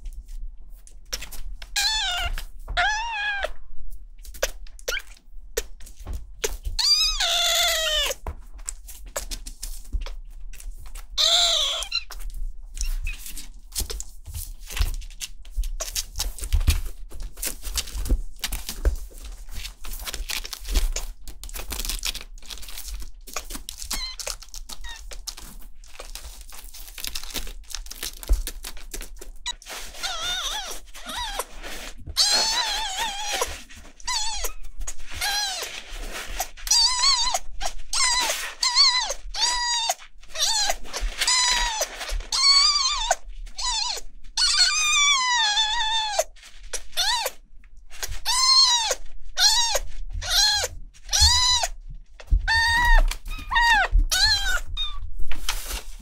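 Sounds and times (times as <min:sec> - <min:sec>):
kitten meowing: 0:01.7 - 0:03.6, 0:06.8 - 0:08.2, 0:11.2 - 0:12.0, 0:29.5 - 0:31.5, 0:32.1 - 0:35.7, 0:36.6 - 0:46.3, 0:46.9 - 0:47.4, 0:48.2 - 0:51.8, 0:52.4 - 0:55.0
tissue rustling: 0:15.9 - 0:39.2, 0:54.2 - 0:56.0.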